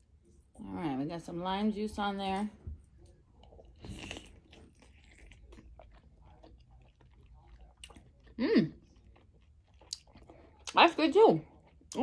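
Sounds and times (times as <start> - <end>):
chewing mussel: 3.1 - 10.8.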